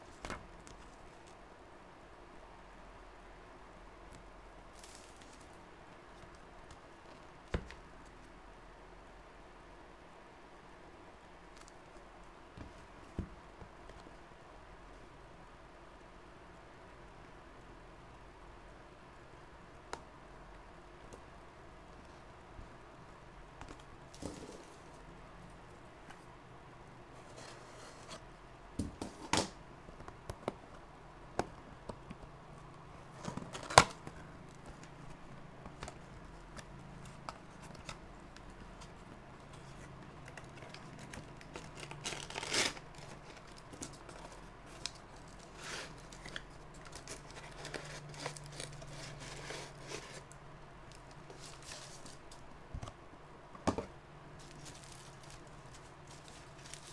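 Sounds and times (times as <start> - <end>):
cardboard and plastic wrap rustling: 38.6 - 50.4, 51.1 - 52.4, 53.7 - 56.9.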